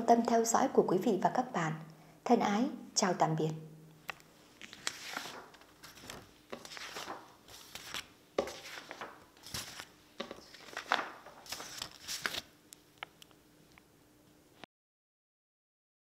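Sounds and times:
paper rustling: 4.6 - 12.5.

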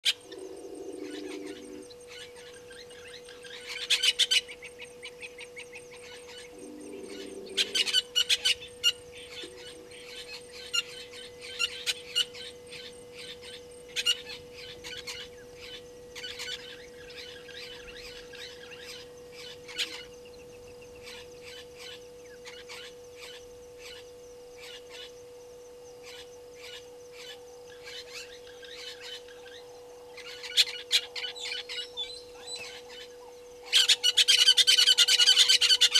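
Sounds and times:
faint hum: 0.0 - 35.9
high-pitched animal chirping: 6.3 - 11.0.

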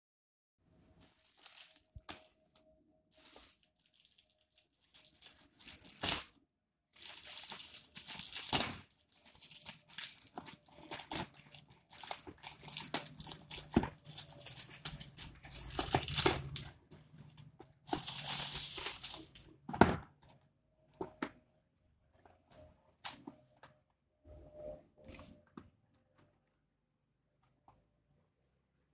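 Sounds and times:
plastic bag tearing and crinkling: 1.0 - 2.3, 3.1 - 6.4, 7.0 - 19.5.

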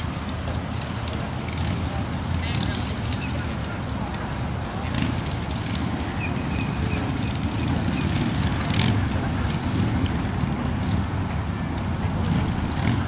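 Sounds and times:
road traffic: 0.0 - 13.0.

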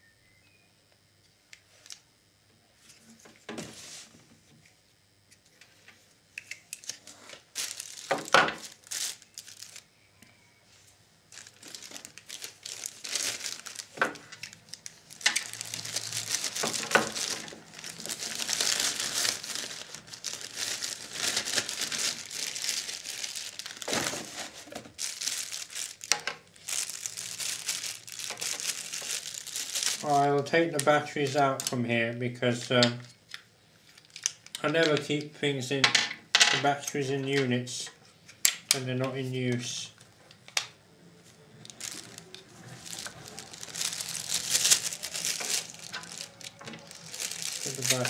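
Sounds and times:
plastic bag crinkling: 6.8 - 9.9, 11.3 - 31.8, 33.8 - 34.6, 41.2 - 48.0.

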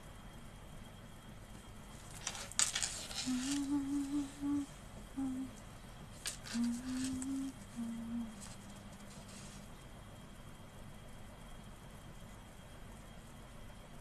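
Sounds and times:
rustling handling noise: 1.9 - 4.3, 6.1 - 9.8
woman humming softly: 3.2 - 5.6, 6.3 - 9.2.

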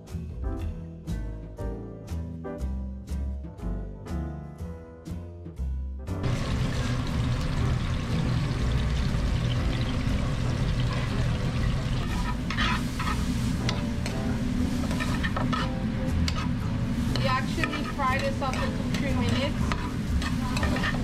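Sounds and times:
hot oil bubbling and sizzling: 6.2 - 21.0.

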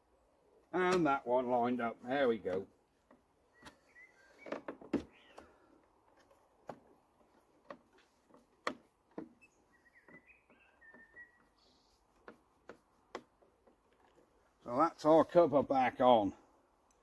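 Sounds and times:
bird chirping: 3.4 - 5.7, 9.3 - 12.2.

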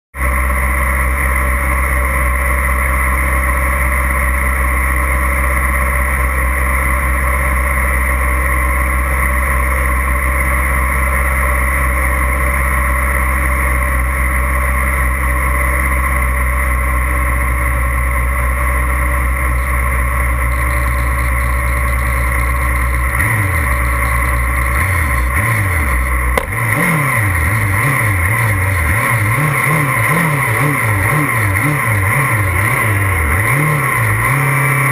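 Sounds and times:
motorcycle engines idling: 0.2 - 34.9
motorcycle throttle blips: 15.9 - 34.9.

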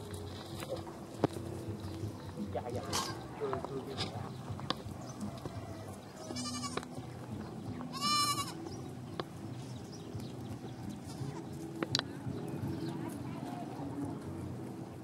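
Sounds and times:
goat bleating: 5.8 - 6.9, 7.9 - 8.6.

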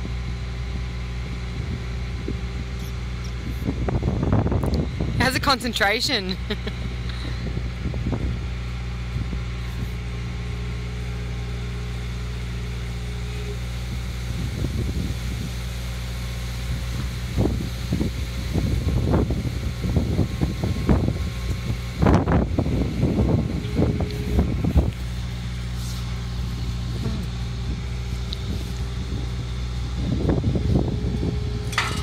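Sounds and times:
loader engine running: 0.0 - 32.0
clanks and knocks: 31.7 - 32.0.

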